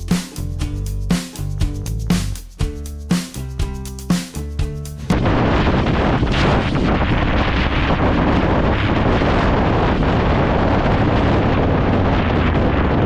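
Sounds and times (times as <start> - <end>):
wind noise on microphone: 4.6 - 13.0
motorcycle engine drone: 5.1 - 13.0.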